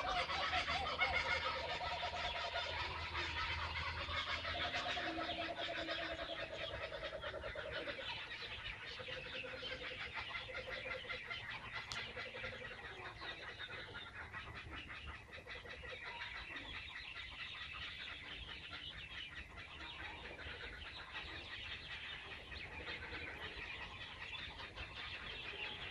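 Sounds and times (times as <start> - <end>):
kookaburras laughing: 0.0 - 8.5.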